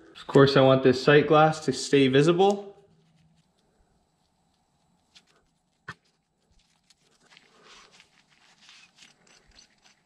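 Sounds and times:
tape scraping and rustling: 2.8s - 10.0s.

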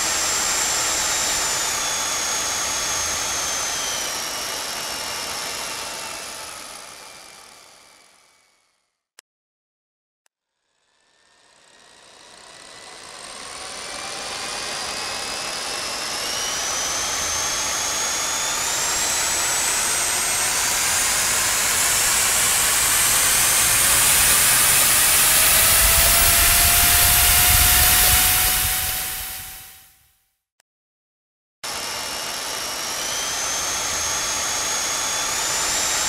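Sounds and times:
jet engine spooling up: 13.5s - 30.0s, 31.7s - 36.0s.

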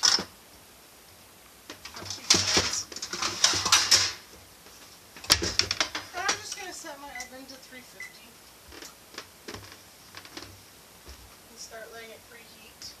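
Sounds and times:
rustling packets: 1.7s - 6.5s
kitchenware clattering: 1.9s - 4.2s.

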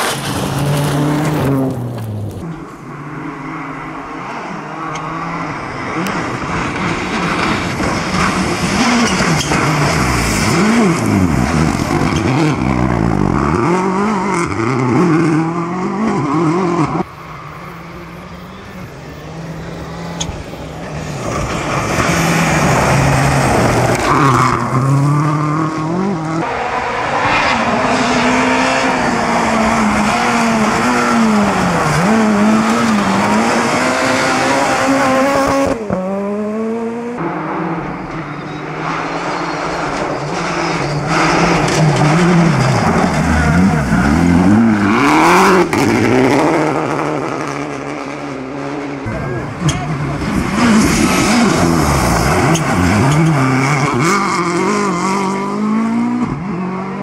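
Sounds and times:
tyres on loose gravel: 0.0s - 2.5s
rally car engines revving: 0.0s - 57.0s.

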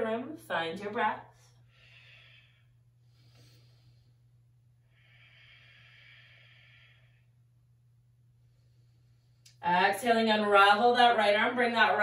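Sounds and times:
low steady hum: 0.0s - 12.0s
woman breathing slowly: 1.4s - 7.7s, 8.3s - 9.6s.

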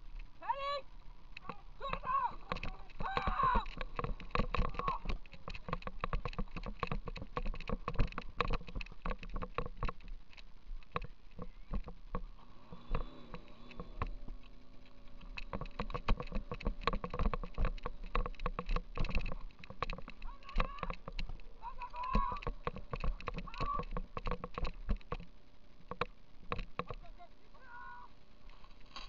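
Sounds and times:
muffled camera case knocking: 2.0s - 10.2s, 15.2s - 27.0s
running footfalls: 15.2s - 25.2s.

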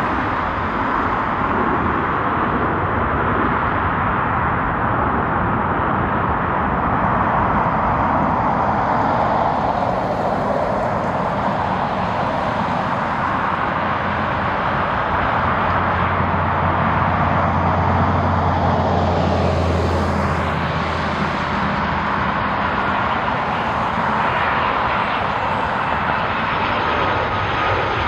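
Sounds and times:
jet engines rushing: 0.0s - 28.0s.

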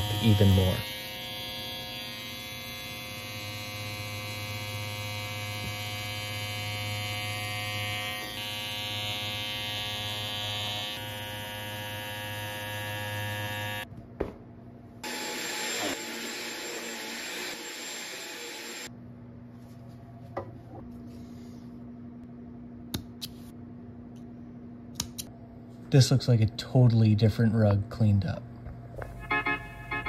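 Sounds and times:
electric trimmer buzzing: 0.0s - 13.9s, 15.0s - 18.9s.

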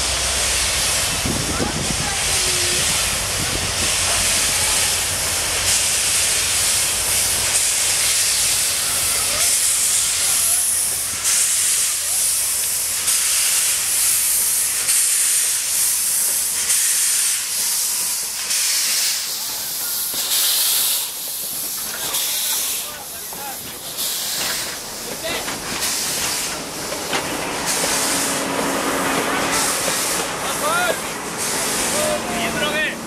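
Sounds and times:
steam hissing: 0.0s - 33.0s
steam locomotive exhaust chuffs: 0.0s - 33.0s
low locomotive rumble: 21.2s - 33.0s.

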